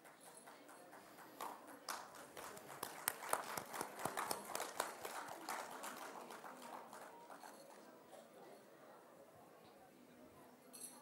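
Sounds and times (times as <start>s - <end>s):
audience applause: 0.0s - 7.6s.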